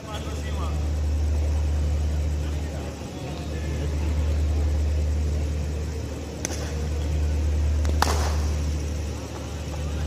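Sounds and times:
low rumble: 0.0s - 10.0s
cricket bat striking ball: 8.0s - 8.5s.

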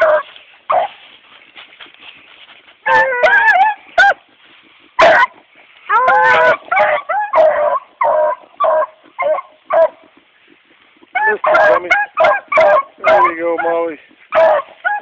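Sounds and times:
puppies yipping and bawling: 0.0s - 1.0s, 2.8s - 4.3s, 5.0s - 10.1s, 11.1s - 15.0s.

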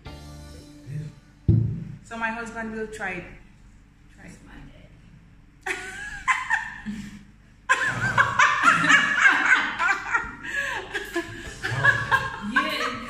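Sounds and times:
woman laughing: 5.7s - 7.1s, 7.7s - 13.0s.

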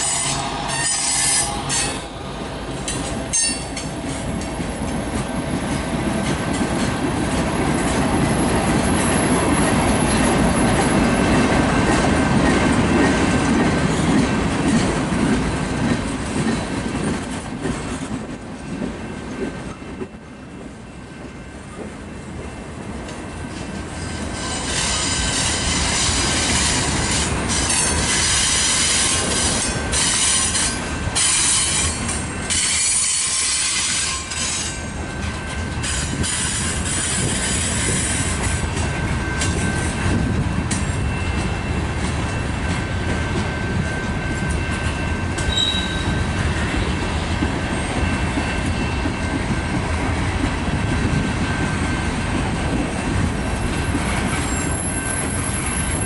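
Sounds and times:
freight train wheels rumbling: 0.0s - 56.0s
thin wheel squeal: 45.5s - 46.2s.

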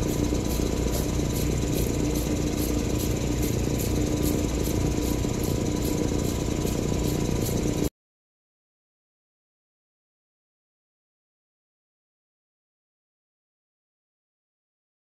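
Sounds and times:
grinding machine motor humming: 0.0s - 7.9s
grinding wheels ticking: 0.0s - 7.9s.

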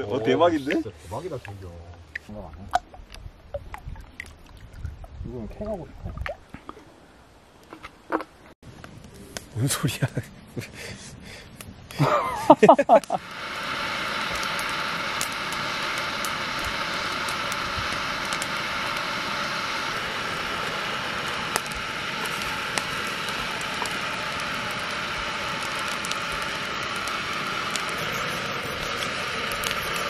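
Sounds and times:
gas stove burner hissing: 10.8s - 30.0s.

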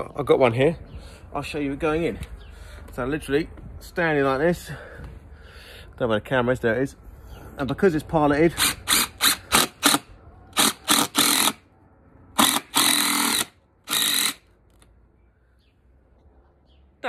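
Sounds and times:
impact driver hammering screw: 8.6s - 11.6s, 12.4s - 14.4s.

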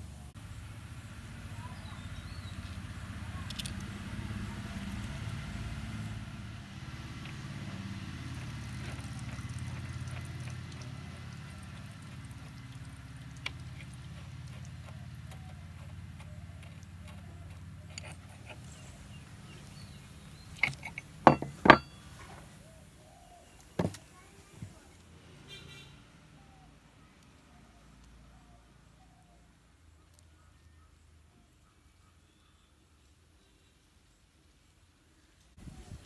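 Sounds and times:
metal clicks and knocks: 3.5s - 3.8s, 20.6s - 21.9s.

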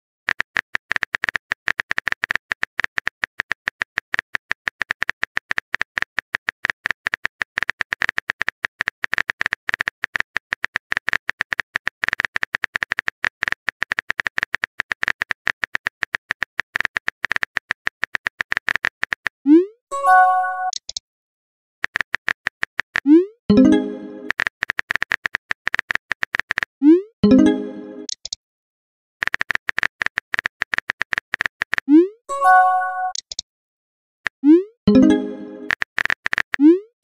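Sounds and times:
keyboard typing clicks: 20.0s - 21.0s, 21.8s - 28.4s, 29.2s - 33.4s, 34.4s - 36.9s.

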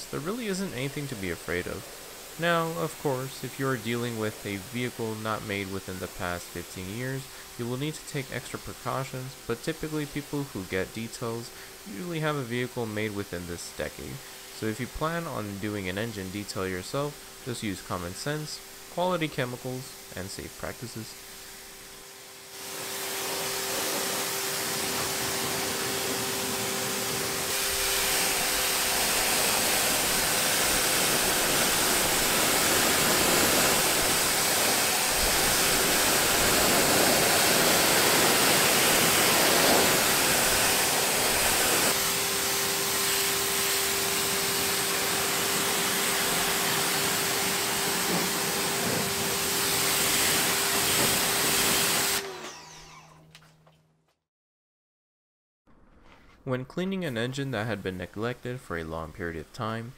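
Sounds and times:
faint steady hum: 0.0s - 21.8s
pressure washer spraying water: 0.0s - 52.7s.

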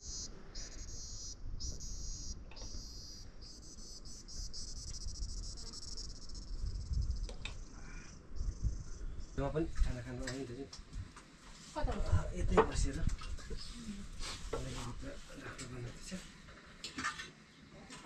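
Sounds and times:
insects chirring: 0.0s - 11.4s.

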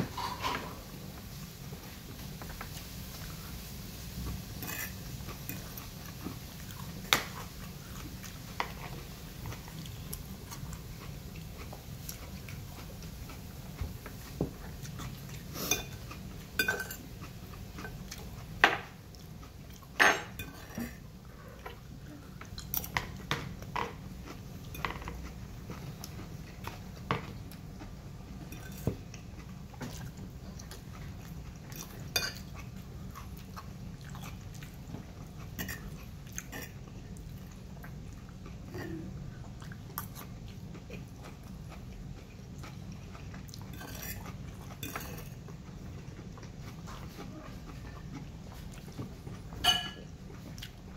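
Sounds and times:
fork scraping a plate: 0.0s - 0.8s, 4.6s - 5.7s, 15.5s - 17.1s, 28.5s - 28.9s, 43.7s - 45.4s
chewing: 4.2s - 50.9s.

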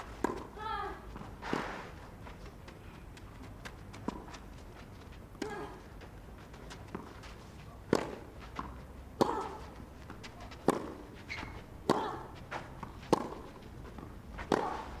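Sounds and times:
tennis racket hitting ball: 0.0s - 0.6s, 7.9s - 15.0s
ball bouncing: 7.9s - 14.8s.

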